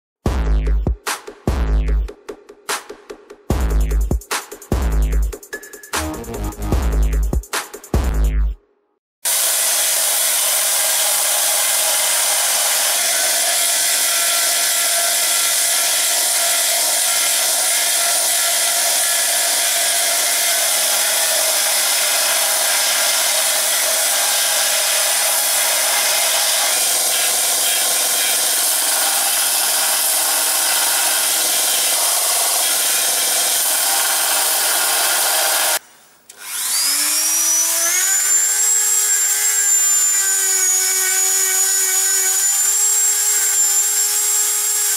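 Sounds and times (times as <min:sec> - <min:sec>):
rotary tool high-pitched whine: 0:09.3 - 0:44.9.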